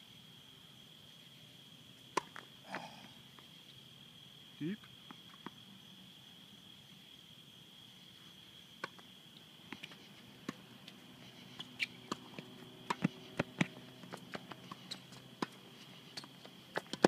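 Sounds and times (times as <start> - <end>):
night insects chirring: 0.0 - 17.0
tennis ball pops on hard court: 2.2 - 2.4.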